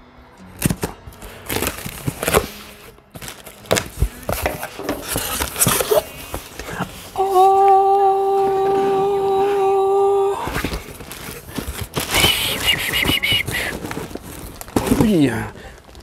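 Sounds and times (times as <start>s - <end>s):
cardboard flaps pulled open: 0.6s - 7.1s
knife slitting packing tape: 0.6s - 7.6s
man humming a note: 7.2s - 10.6s.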